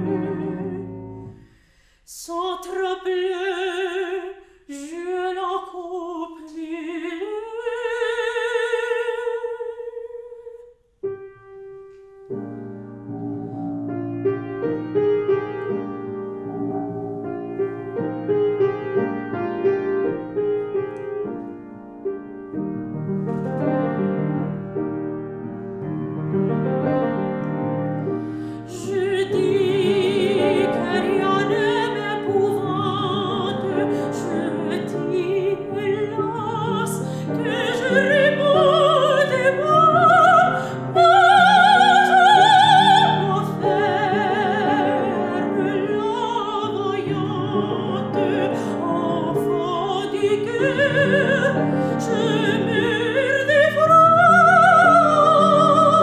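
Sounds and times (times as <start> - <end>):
woman singing opera: 0.0 - 1.3, 2.1 - 10.7, 28.4 - 56.0
grand piano: 0.0 - 56.0.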